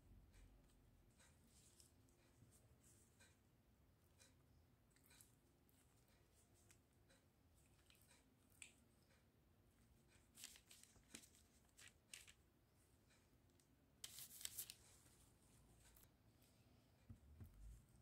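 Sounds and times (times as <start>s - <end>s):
plastic gloves and parchment crinkling: 10.3s - 12.4s, 14.0s - 15.0s.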